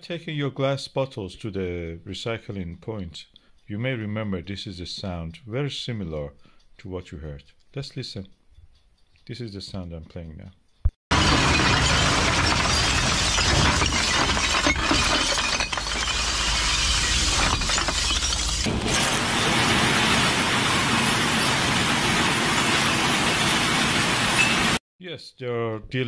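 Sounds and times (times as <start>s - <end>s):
glass bottles shattering: 11.1s - 21.6s
hissing clatter of broken glass: 11.1s - 24.8s.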